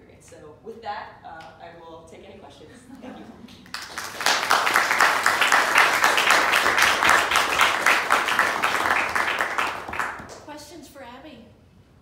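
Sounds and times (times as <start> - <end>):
small group applauding: 3.5 - 10.5
close loud hand clapping: 3.6 - 10.5.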